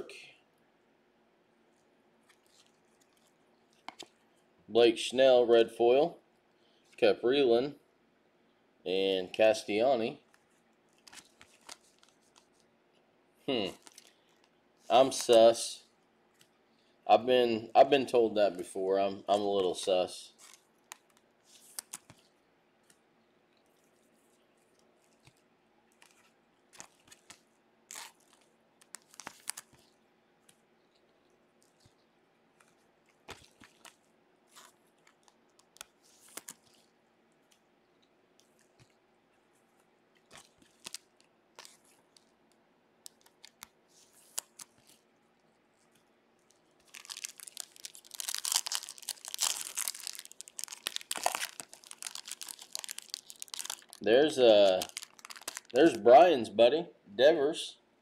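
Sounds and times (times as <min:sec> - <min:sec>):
foil wrapper crinkling: 0:01.7 - 0:04.3, 0:10.3 - 0:12.7, 0:13.7 - 0:15.6, 0:19.2 - 0:23.0, 0:23.7 - 0:36.9, 0:39.7 - 0:56.1
light crackles of foil: 0:01.7 - 0:04.5, 0:10.3 - 0:12.7, 0:13.6 - 0:17.0, 0:17.8 - 0:56.1.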